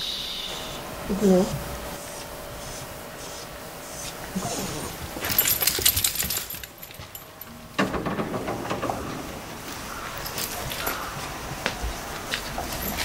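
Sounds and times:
metallic jingling and clicking: 0:05.2 - 0:07.6, 0:09.7 - 0:11.4, 0:12.3 - 0:13.0
loud rattle: 0:05.2 - 0:11.2.

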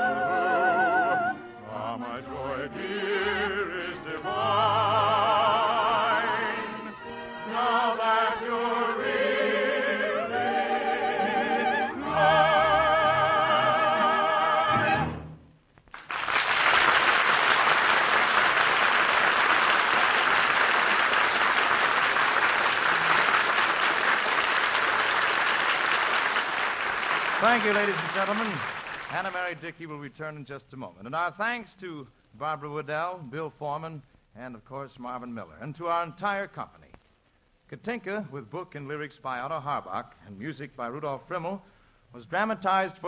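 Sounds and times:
operetta singing with vibrato: 0:00.0 - 0:15.3
orchestra playing: 0:10.4 - 0:15.4
audience applause: 0:15.9 - 0:29.6.

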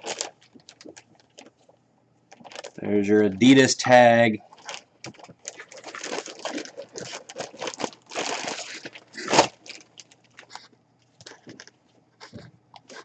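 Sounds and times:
plastic bag crinkling: 0:00.0 - 0:03.6, 0:04.4 - 0:13.0.

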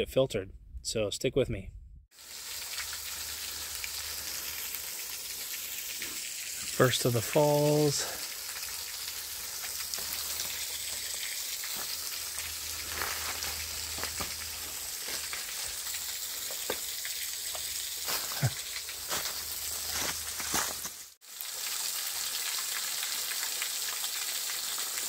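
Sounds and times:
meltwater trickling: 0:02.2 - 0:20.9
sharp water drips: 0:02.2 - 0:25.0.

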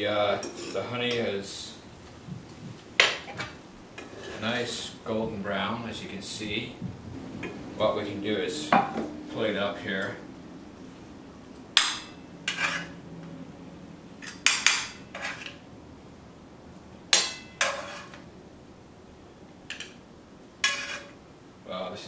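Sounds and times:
metal spoon clinking on pan: 0:17.2 - 0:18.2.

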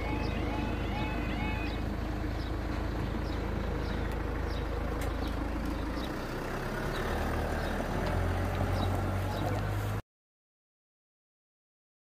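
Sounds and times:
level crossing warning alarm: 0:00.0 - 0:02.6
low steady rumble: 0:00.0 - 0:10.0.

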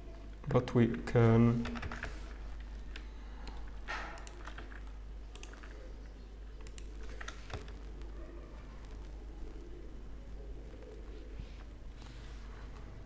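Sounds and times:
low steady hum: 0:00.0 - 0:13.0
keyboard keys clicking: 0:01.6 - 0:09.6.

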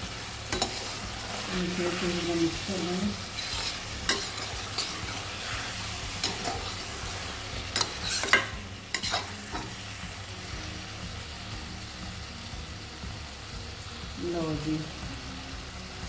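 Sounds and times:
spatula scraping a wok: 0:00.0 - 0:10.2
vegetables sizzling in a wok: 0:00.0 - 0:16.0.

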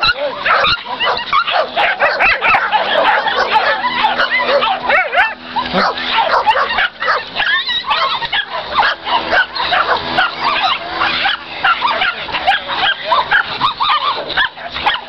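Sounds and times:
dogs barking and yelping: 0:00.0 - 0:15.0.

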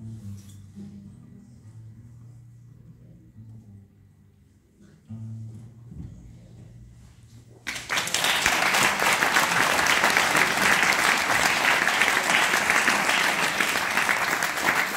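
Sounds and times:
audience applauding: 0:07.7 - 0:14.9.

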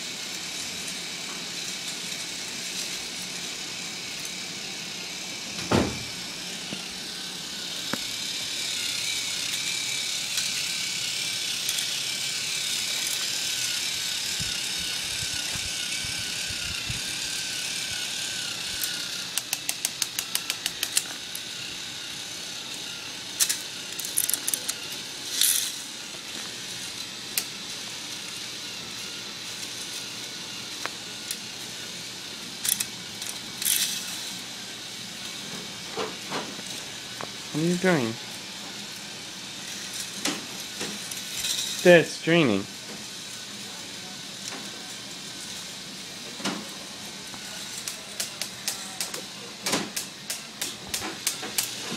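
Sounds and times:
chain lift whining and rattling: 0:00.3 - 0:43.8
thump: 0:05.6 - 0:06.0
regular clicks: 0:19.3 - 0:21.1.

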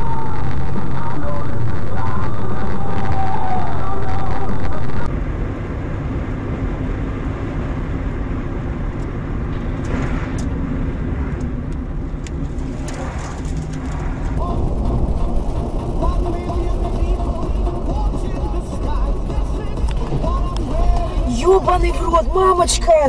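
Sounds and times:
car engine and road noise: 0:00.0 - 0:23.0.

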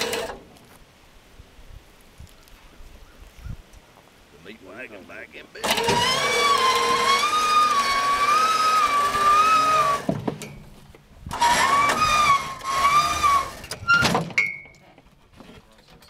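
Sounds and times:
winch motor whining: 0:00.0 - 0:00.4, 0:05.6 - 0:10.2, 0:11.3 - 0:14.1.

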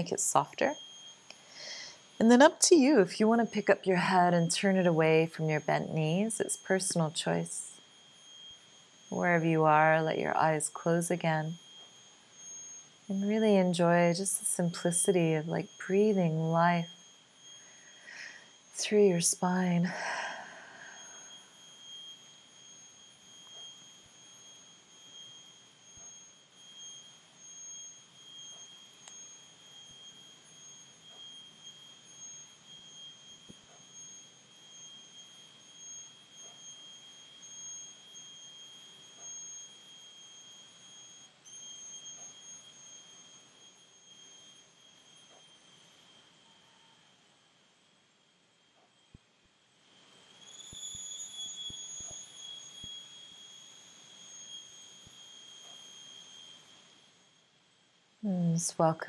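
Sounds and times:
faint hiss: 0:00.0 - 0:23.0
high-pitched whine: 0:00.0 - 0:59.0.

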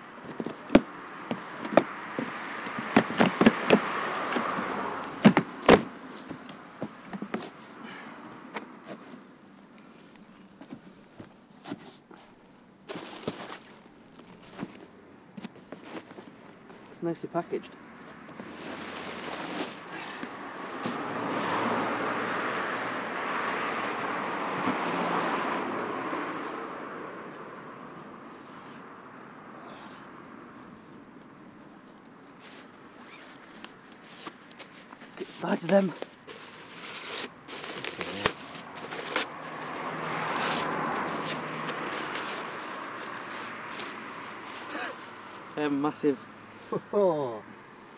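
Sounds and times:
car passing on road: 0:00.0 - 0:10.0, 0:15.9 - 0:47.9
cardboard clicks and rustling: 0:00.2 - 0:07.6, 0:33.2 - 0:45.5
packing rustling: 0:00.2 - 0:07.7, 0:10.3 - 0:16.9, 0:18.3 - 0:21.0, 0:32.4 - 0:45.6
packing tape tearing: 0:36.0 - 0:45.5.

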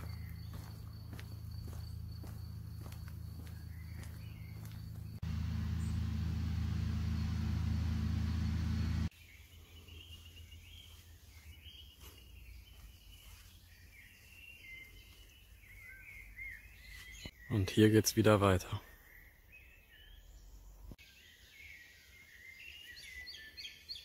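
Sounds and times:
faint birdsong: 0:00.0 - 0:24.0
loud low rumble with hiss: 0:05.2 - 0:09.1.

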